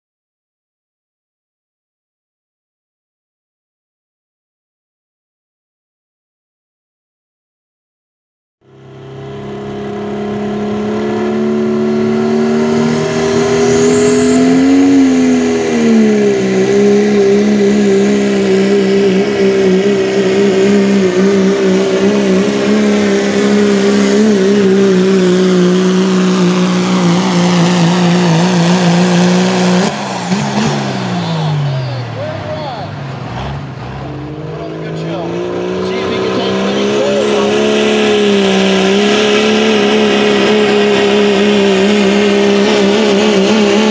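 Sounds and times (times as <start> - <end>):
diesel engine droning under load: 8.6 - 43.9
high engine whistle: 12.0 - 17.6, 26.7 - 33.0, 36.0 - 40.8.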